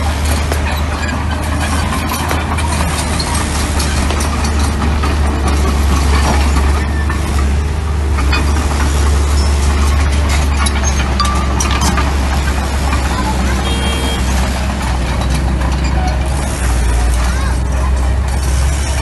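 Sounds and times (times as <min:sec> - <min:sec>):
clinks and clatter: 0:00.0 - 0:13.6
bulldozer diesel engine humming: 0:00.0 - 0:19.0.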